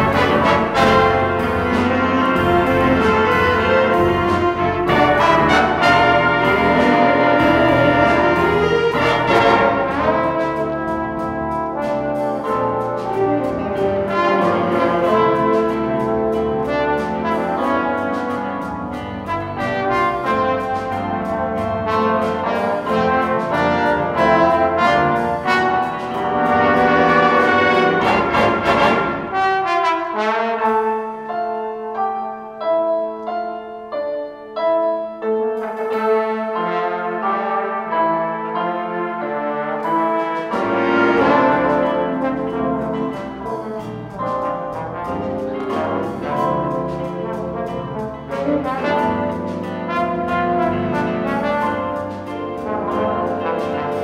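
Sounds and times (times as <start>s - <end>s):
trombone: 0.0s - 32.0s, 35.3s - 54.0s
jazz big band playing: 0.0s - 54.0s
piano: 0.0s - 54.0s.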